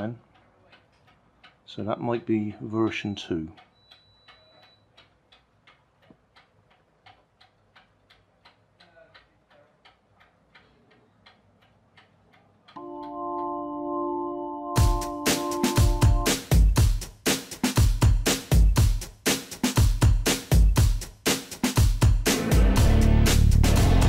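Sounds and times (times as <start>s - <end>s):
faint even ticking: 0.0s - 13.5s
organ-like music chords: 12.8s - 17.0s, 22.2s - 24.0s.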